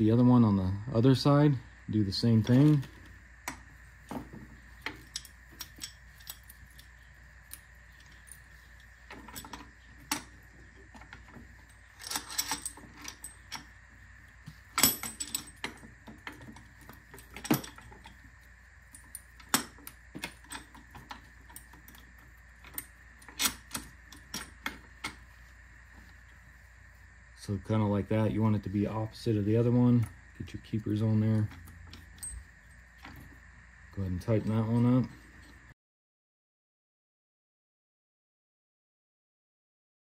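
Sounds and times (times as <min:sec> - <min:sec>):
metal clinks and knocks: 0:02.5 - 0:13.8, 0:14.4 - 0:25.3, 0:30.8 - 0:33.4.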